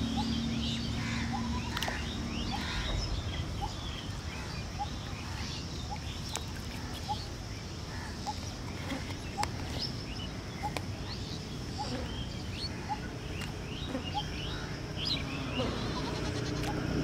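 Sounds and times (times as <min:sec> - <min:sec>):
wind rumble on microphone: 0:00.0 - 0:07.6
birds chirping and calling: 0:00.0 - 0:17.0
steady low hum: 0:00.0 - 0:17.0.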